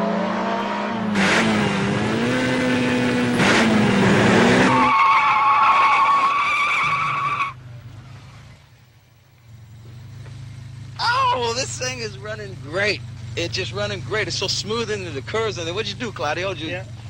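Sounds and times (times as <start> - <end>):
racing engine revving: 0.0 - 5.0
tire squeal: 2.4 - 8.4.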